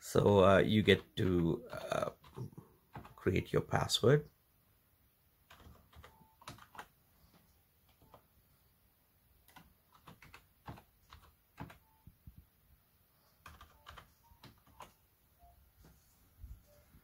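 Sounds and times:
faint keyboard keystrokes: 5.5 - 8.3, 9.4 - 12.5, 13.3 - 15.0.

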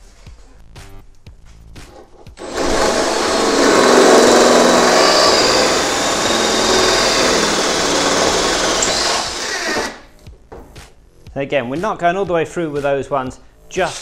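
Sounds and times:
cordless drill boring sheet metal: 2.4 - 10.1.

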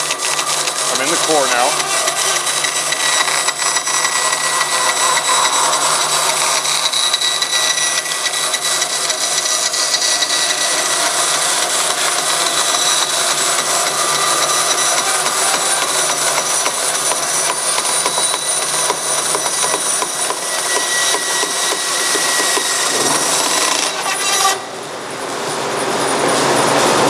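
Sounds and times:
bandsaw cutting cardboard: 0.0 - 24.9
high steady whining tones: 19.9 - 26.0.

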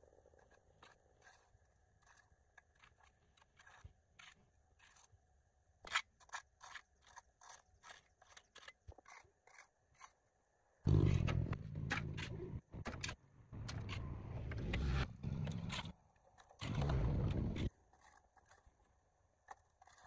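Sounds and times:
hoe scraping mud on concrete: 0.0 - 5.2, 5.8 - 10.2, 13.6 - 20.0.

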